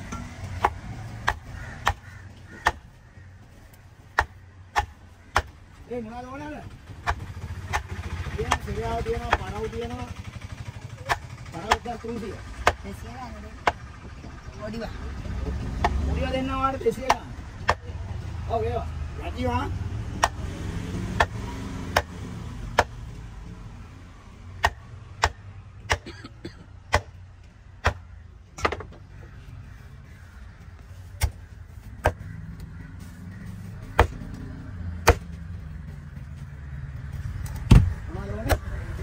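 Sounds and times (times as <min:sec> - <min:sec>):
cleaver chopping on wooden block: 0:00.4 - 0:02.9, 0:04.1 - 0:05.6, 0:15.8 - 0:16.0, 0:17.0 - 0:17.9, 0:20.1 - 0:23.0, 0:24.6 - 0:26.1, 0:27.8 - 0:28.9, 0:35.0 - 0:35.4.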